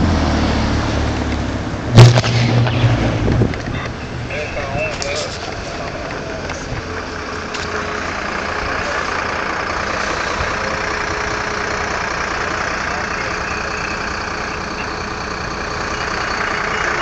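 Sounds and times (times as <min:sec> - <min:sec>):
rushing noise: 0:00.0 - 0:12.4
vehicle engine idling: 0:00.0 - 0:17.0.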